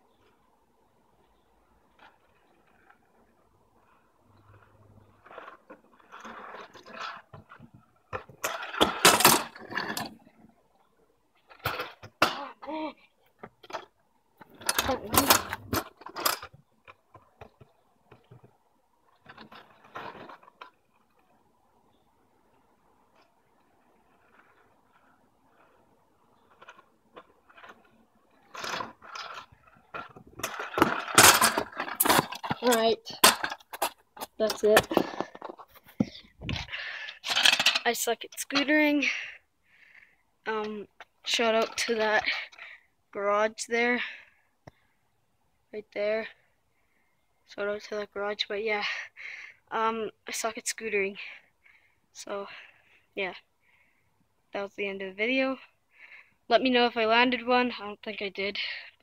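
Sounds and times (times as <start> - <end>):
scooter wheels rolling on asphalt: 0.1 - 44.8
scooter knocking and rattling: 6.2 - 10.2, 14.4 - 18.6, 28.5 - 38.6.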